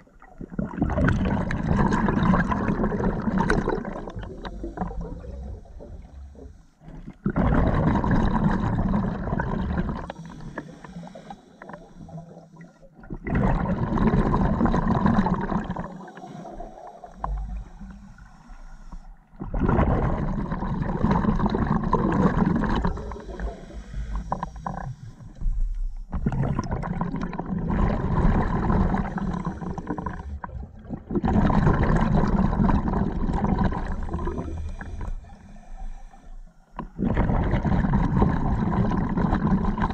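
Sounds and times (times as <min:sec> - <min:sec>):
exhaled bubble bursts: 0:00.0 - 0:18.3, 0:19.3 - 0:25.0, 0:26.1 - 0:35.6, 0:36.2 - 0:39.9
diver breathing through regulator: 0:09.8 - 0:12.9, 0:15.6 - 0:19.4, 0:22.3 - 0:26.4, 0:28.4 - 0:30.5, 0:33.8 - 0:38.9.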